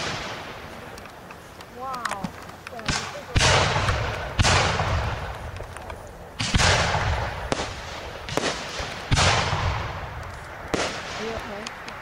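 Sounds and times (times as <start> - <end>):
firework shells booming: 0.0 - 1.0, 2.1 - 12.0
firework rumble and crackle: 0.0 - 12.0.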